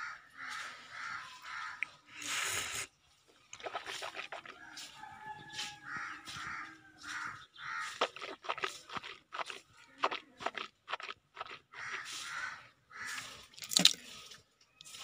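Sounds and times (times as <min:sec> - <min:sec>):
crows cawing: 0:00.0 - 0:02.0, 0:04.8 - 0:09.1, 0:11.4 - 0:13.6
slurping sip from a mug: 0:02.1 - 0:02.9, 0:03.5 - 0:04.6, 0:08.0 - 0:12.1.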